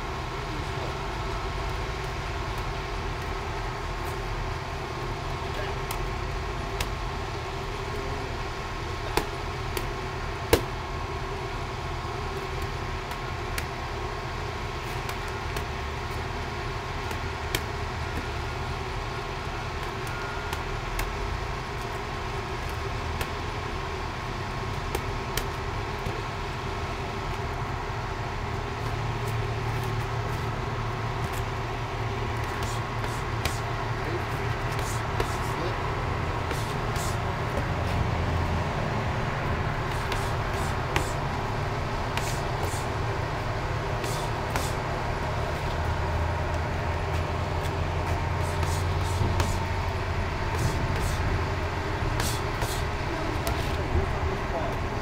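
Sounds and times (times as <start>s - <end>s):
road traffic rumble: 0.0s - 55.0s
boxing gloves hitting mitts: 9.0s - 10.8s, 12.2s - 27.4s, 28.7s - 38.1s, 39.8s - 45.8s, 46.5s - 49.8s, 50.5s - 51.3s, 52.1s - 53.9s.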